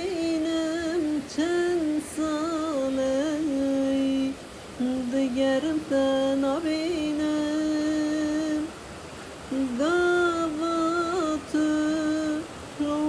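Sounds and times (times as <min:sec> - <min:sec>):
woman singing slow song: 0:00.0 - 0:13.0.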